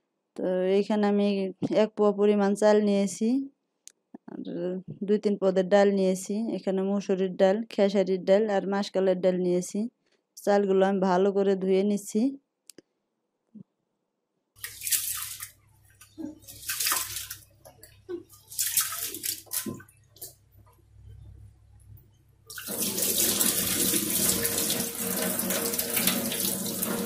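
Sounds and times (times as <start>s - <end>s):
swishing splashes in water bowl: 14.6s - 17.5s, 18.3s - 20.4s
water running into sink: 22.5s - 27.0s.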